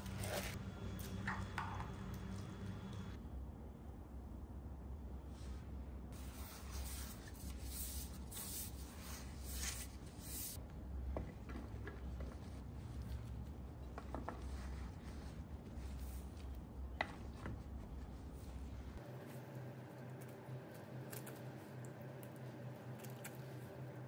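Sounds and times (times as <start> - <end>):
soft rubbing and rustling: 5.2 - 10.6, 11.2 - 19.4.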